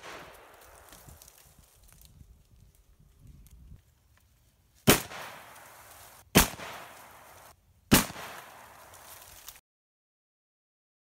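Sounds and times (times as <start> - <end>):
shotgun shots echoing: 0.0 - 0.9, 4.9 - 9.0.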